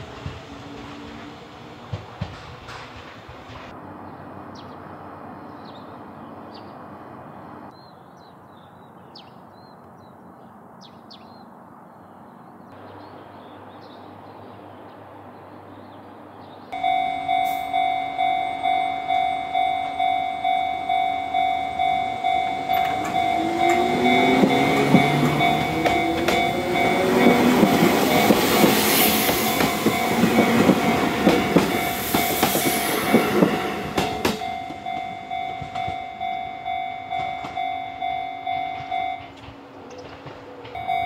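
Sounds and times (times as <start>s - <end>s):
level crossing bell ringing: 16.8s - 28.6s, 29.5s - 39.4s, 40.8s - 41.0s
electric train motor whine: 16.8s - 35.8s.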